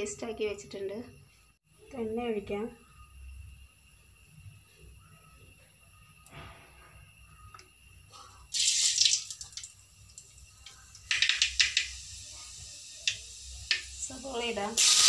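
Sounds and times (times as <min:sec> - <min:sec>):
seeds sizzling in hot oil: 0:08.5 - 0:15.0.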